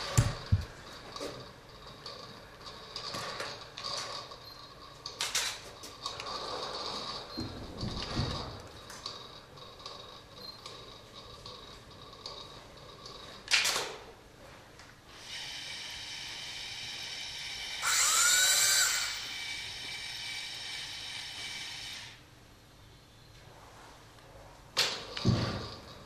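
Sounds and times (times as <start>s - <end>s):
electric motor whining: 16.8s - 20.0s.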